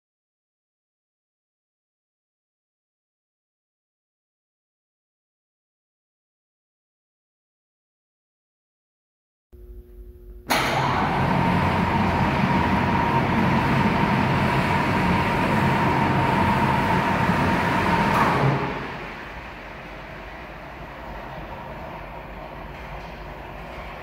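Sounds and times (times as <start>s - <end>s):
overhead crane hoist whine: 9.6s - 24.0s.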